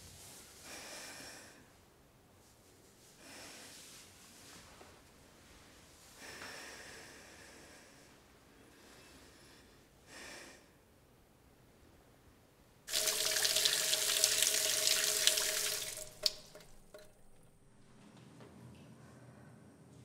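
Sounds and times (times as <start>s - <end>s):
tap water running hard: 12.9s - 17.6s.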